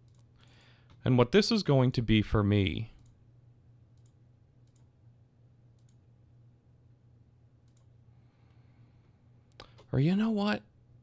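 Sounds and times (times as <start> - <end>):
computer mouse clicks: 0.0 - 1.0, 4.0 - 4.9, 5.7 - 6.0, 7.6 - 7.9
low steady hum: 0.0 - 11.0.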